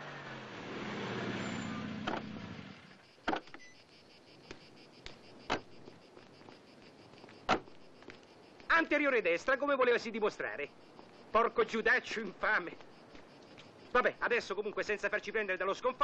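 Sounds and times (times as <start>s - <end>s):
car engine running: 0.0s - 3.4s
car doors clicking shut: 2.0s - 2.4s, 3.2s - 3.6s, 5.5s - 5.8s, 7.4s - 7.8s.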